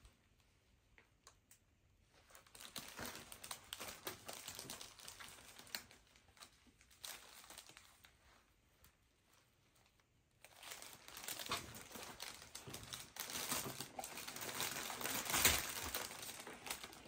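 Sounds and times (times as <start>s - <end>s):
gift packaging crinkling: 2.2s - 8.2s, 10.4s - 17.0s.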